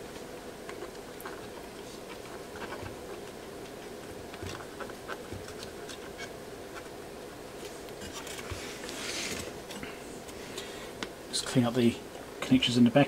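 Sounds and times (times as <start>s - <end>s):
cotton swab scratching circuit board: 0.7s - 3.3s, 3.9s - 6.9s.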